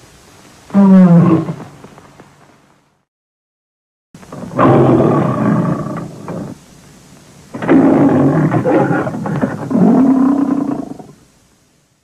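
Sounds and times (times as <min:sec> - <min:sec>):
big cat roar: 0:04.3 - 0:06.6, 0:07.5 - 0:11.2.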